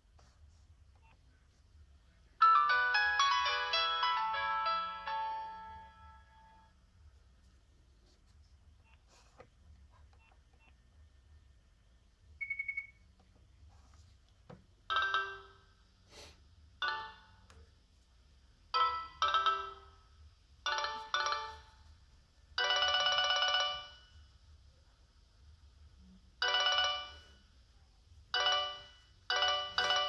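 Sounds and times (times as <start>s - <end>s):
polyphonic phone ringtone: 2.4s - 6.7s, 14.9s - 15.7s, 16.8s - 17.4s, 18.8s - 20.0s, 20.7s - 21.9s, 22.6s - 24.2s, 26.4s - 27.4s, 28.3s - 30.0s
short phone beep: 12.4s - 13.0s.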